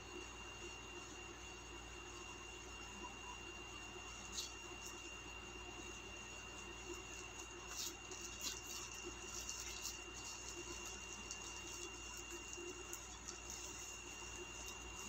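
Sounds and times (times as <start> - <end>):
thin high whine: 0.0 - 15.0
plastic bag crinkling: 6.7 - 15.0.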